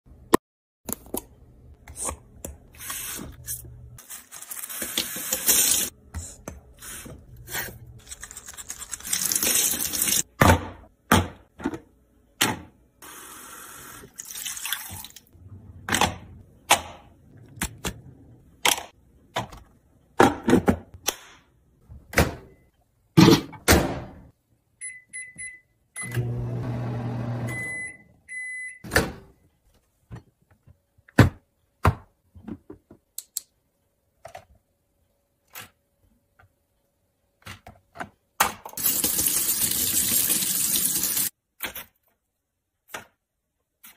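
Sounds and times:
microwave keypad beeps: 24.8s - 26.3s, 27.5s - 28.8s
microwave oven humming: 26.0s - 28.1s.

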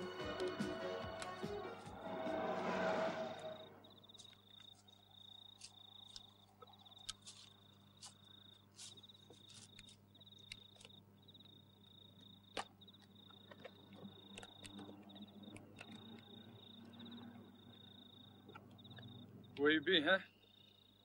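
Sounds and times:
thin high trill: 0.0s - 4.2s.

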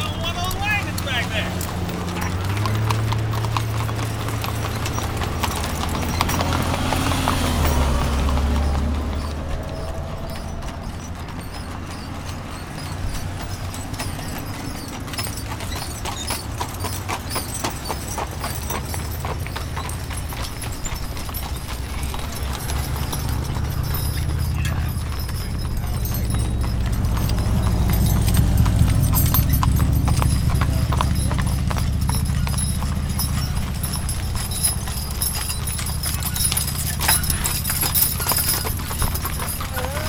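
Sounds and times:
hooves clip-clopping on asphalt: 0.0s - 40.0s.

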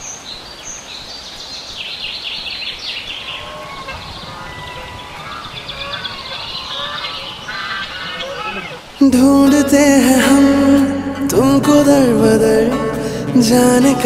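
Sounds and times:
small birds chirping: 0.0s - 9.2s.

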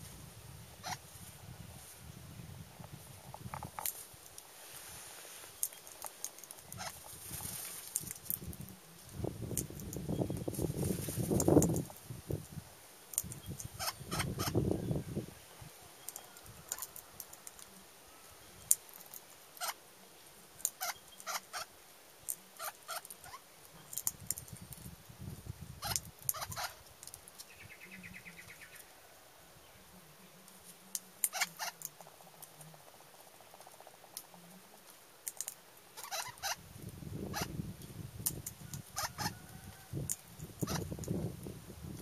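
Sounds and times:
parrot cracking seeds: 5.6s - 8.6s, 16.1s - 17.8s, 33.5s - 36.6s
beak pecking on wooden rail: 30.4s - 36.6s.

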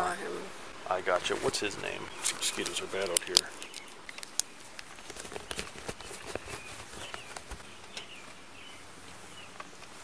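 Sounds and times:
steady hiss: 0.0s - 4.8s
bird chirps: 1.9s - 4.7s, 5.4s - 9.8s
light clicks and rustles: 2.2s - 8.4s.

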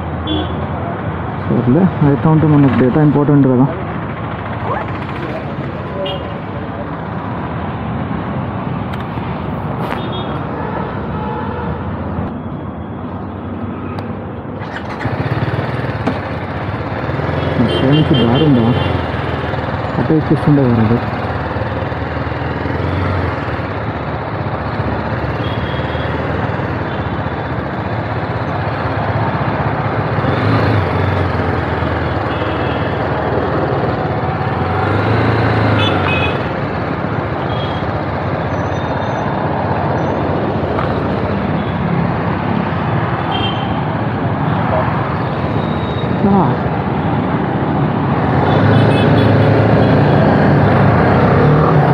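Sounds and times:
traffic and road noise: 0.0s - 51.9s
motorcycle engine running: 14.6s - 38.4s.

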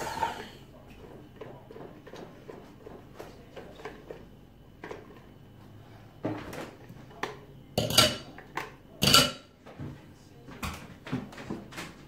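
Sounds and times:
kitchen utensils and dishes clattering: 0.0s - 5.3s, 7.8s - 9.6s.

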